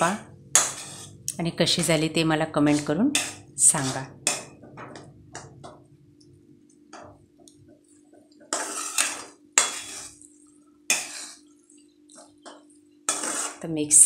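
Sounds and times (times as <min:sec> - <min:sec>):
metal spatula scraping a pan: 0:00.0 - 0:04.6, 0:08.4 - 0:10.3, 0:10.9 - 0:11.6, 0:12.2 - 0:14.0
faint steady hum: 0:00.0 - 0:14.0.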